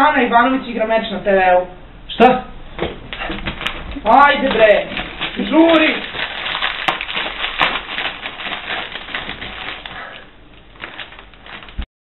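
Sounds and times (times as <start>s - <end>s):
chips crunching: 3.5s - 11.9s
plastic snack bag crackling: 3.5s - 11.9s.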